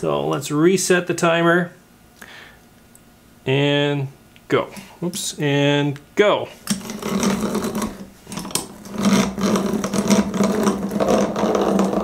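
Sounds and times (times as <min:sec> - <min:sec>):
hand drill gears whirring: 0:06.7 - 0:12.0.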